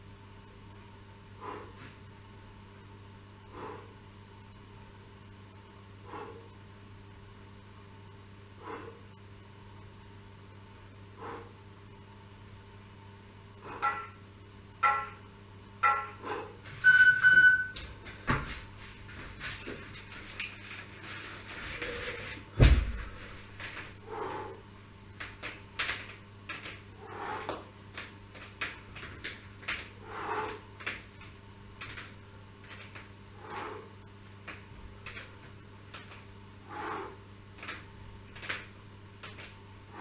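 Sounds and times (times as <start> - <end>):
short high beeps: 16.9 - 17.8
knocks on exercise mat: 22.6 - 23.1
heavy thump: 22.6 - 23.2.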